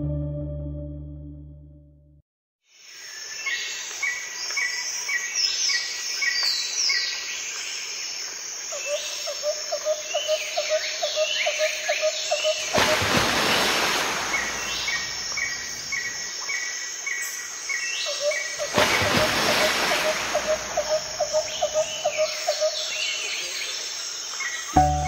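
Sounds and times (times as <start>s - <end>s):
birds chirping: 12.2s - 16.3s, 18.0s - 23.8s
low pulsed bird calls: 18.1s - 23.0s.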